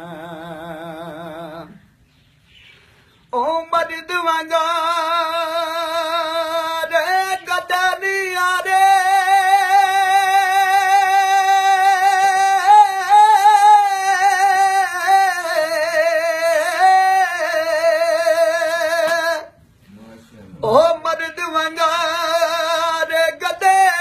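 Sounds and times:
man singing a long high note: 0.0 - 1.8, 3.4 - 19.6.

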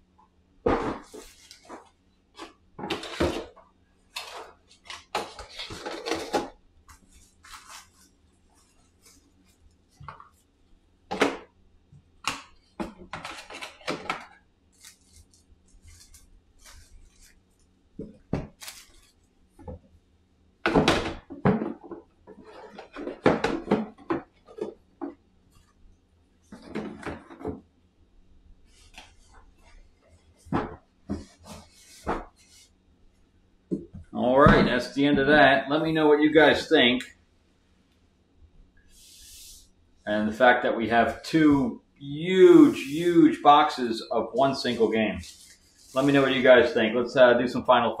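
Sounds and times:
plastic trays and cardboard clattering: 0.6 - 8.0, 12.3 - 14.4, 20.7 - 25.2, 26.5 - 27.7, 33.7 - 35.5.

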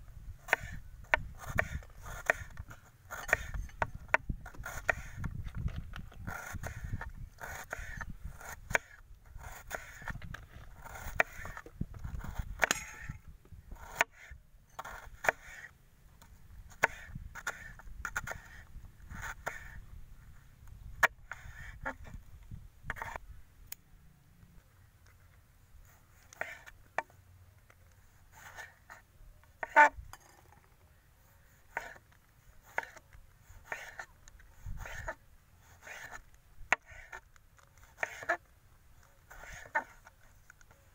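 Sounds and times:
knife slicing tomato on board: 0.5 - 5.3, 33.6 - 36.2.

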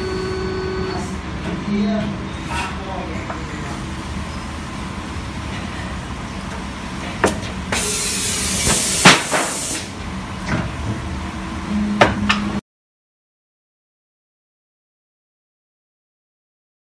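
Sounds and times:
air hissing: 7.7 - 10.0.

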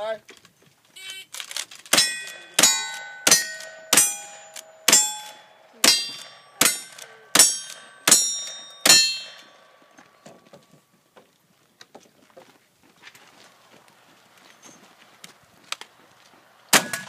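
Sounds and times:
rifle shots: 1.4 - 9.7
steel plate ringing clang: 1.9 - 10.2.

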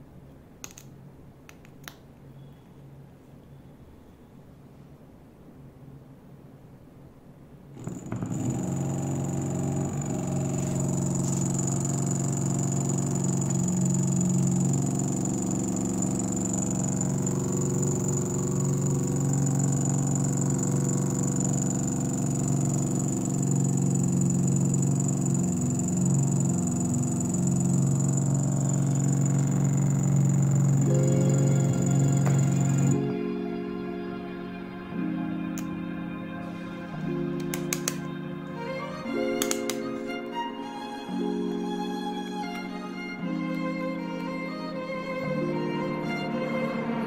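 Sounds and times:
electric motor hum: 7.8 - 33.3
motor high whine: 7.8 - 47.0.

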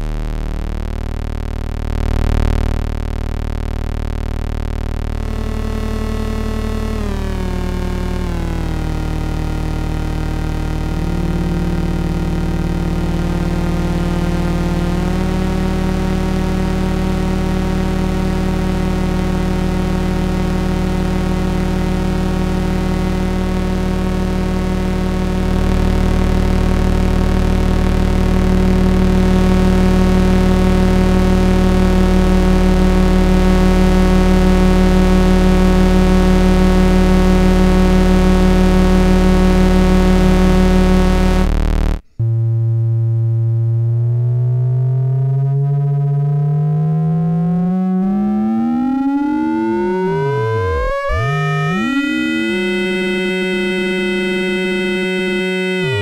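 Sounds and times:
synthesizer buzzing drone: 0.0 - 56.0
gliding synthesizer tone: 5.2 - 18.2, 44.8 - 56.0.

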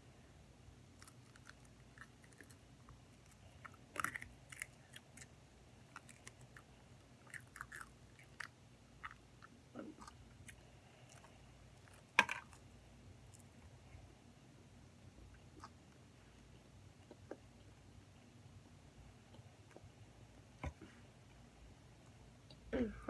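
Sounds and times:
child chewing crunchy crust: 0.9 - 13.6.

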